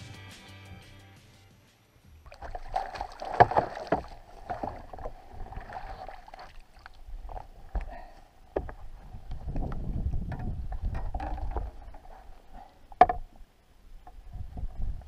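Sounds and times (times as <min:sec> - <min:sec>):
fish splashing in a net: 0:02.3 - 0:06.9.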